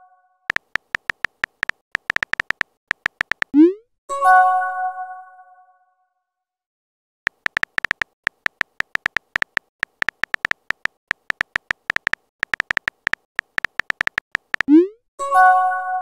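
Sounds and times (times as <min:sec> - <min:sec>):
keyboard typing clicks: 0:00.5 - 0:03.7, 0:07.3 - 0:14.9.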